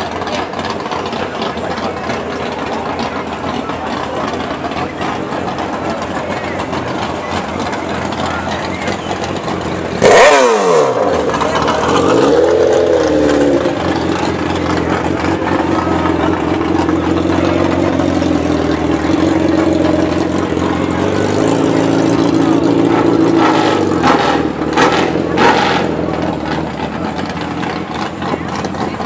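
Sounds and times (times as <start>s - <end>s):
engine idling and revving: 0.0s - 29.0s.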